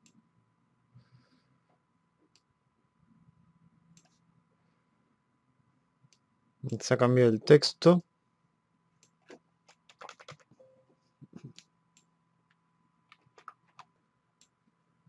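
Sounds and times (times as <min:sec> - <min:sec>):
computer keyboard typing: 0:09.0 - 0:10.6, 0:13.1 - 0:13.9.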